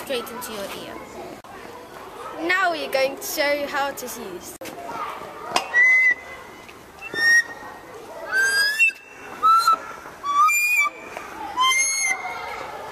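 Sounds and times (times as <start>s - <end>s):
short hooting whistles: 7.0s - 7.6s.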